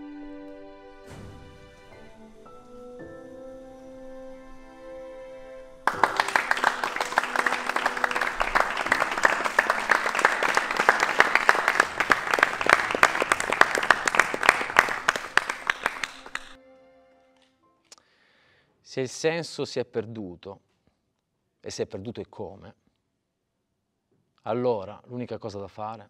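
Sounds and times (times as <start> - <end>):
soft background music: 0.0 - 5.9
people applauding: 5.8 - 16.6.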